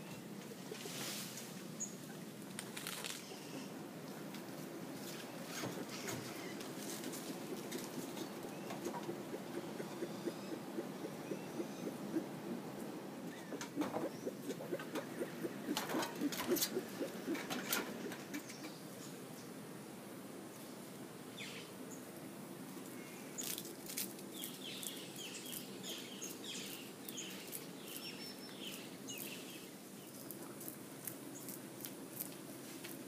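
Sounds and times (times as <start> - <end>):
leaves and branches rustling: 0.0 - 33.0
branches snapping: 2.5 - 3.2
bird chirping: 7.5 - 12.7, 24.3 - 30.4.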